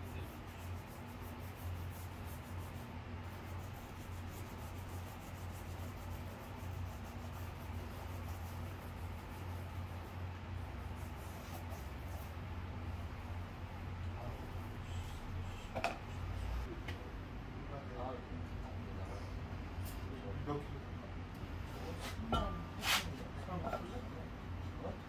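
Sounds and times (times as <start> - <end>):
faint rubbing and scraping: 0.0 - 16.7.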